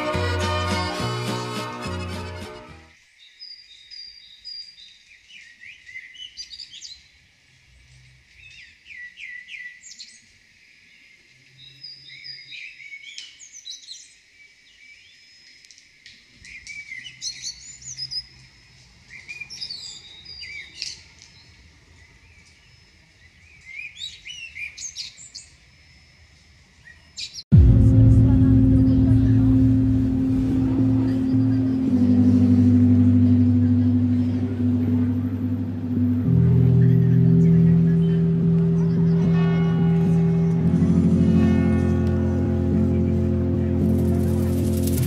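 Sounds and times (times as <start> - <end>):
small birds chirping: 3.0 - 25.7, 35.9 - 40.2.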